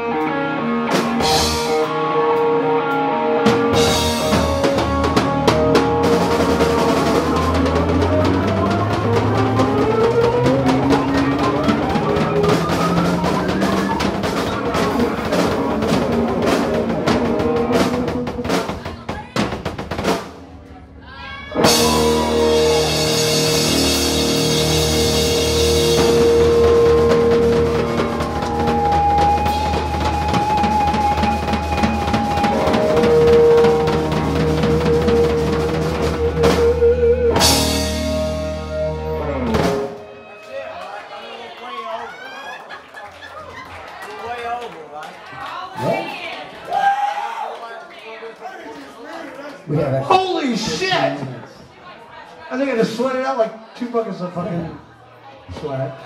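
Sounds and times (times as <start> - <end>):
electric guitar: 0.0 - 18.7, 21.5 - 40.3
drum kit: 0.1 - 20.7, 21.5 - 40.2.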